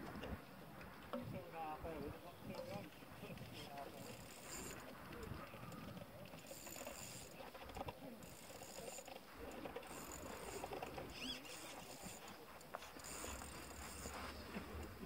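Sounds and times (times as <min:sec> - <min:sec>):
faint outdoor hiss: 0:00.0 - 0:15.0
high bird chirp: 0:11.1 - 0:11.6.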